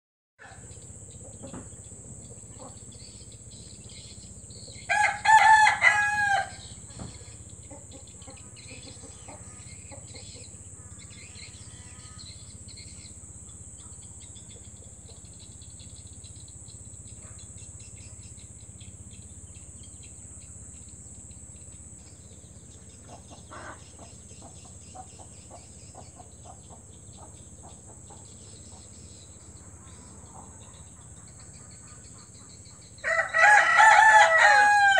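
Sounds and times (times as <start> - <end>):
chickens clucking: 0.4 - 4.9, 6.6 - 16.1, 22.0 - 33.0
rooster crowing: 4.8 - 6.8, 33.0 - 34.9.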